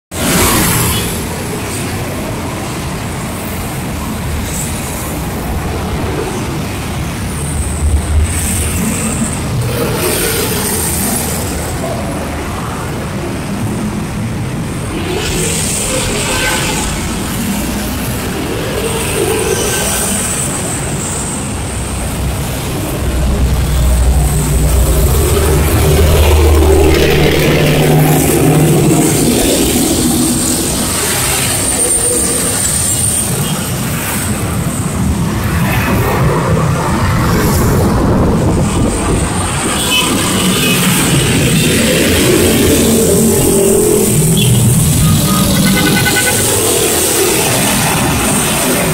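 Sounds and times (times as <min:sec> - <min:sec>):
dense road traffic rumble: 0:00.1 - 0:48.9
motorcycles and cars passing: 0:00.2 - 0:48.9
deep engine rumble: 0:05.1 - 0:12.6, 0:20.5 - 0:31.3.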